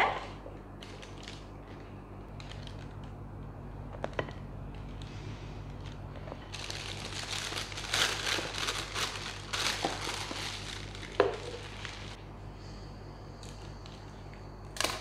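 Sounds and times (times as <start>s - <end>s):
plastic bag crinkling: 5.8s - 12.2s.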